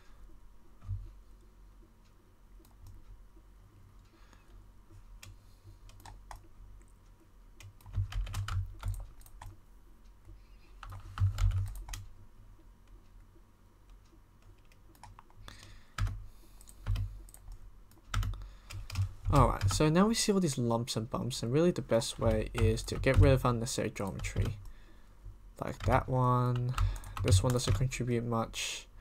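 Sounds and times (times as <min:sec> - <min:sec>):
computer keyboard keystrokes: 0:05.2 - 0:06.5, 0:07.6 - 0:09.6, 0:10.8 - 0:12.1, 0:13.9 - 0:19.8, 0:22.3 - 0:23.4, 0:25.7 - 0:27.9.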